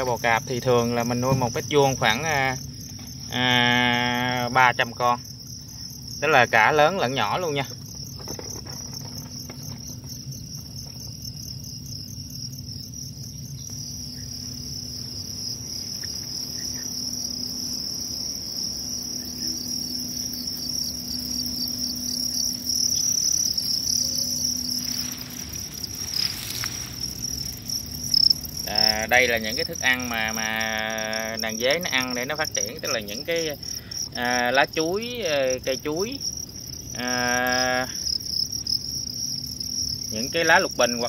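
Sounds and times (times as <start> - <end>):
crickets chirping: 0.0 - 41.0
leaves rustling: 14.0 - 33.4.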